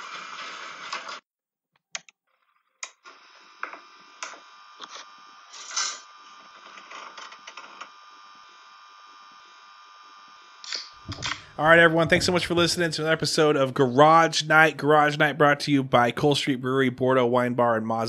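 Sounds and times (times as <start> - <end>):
clicks and knocks: 11.1 - 12.8.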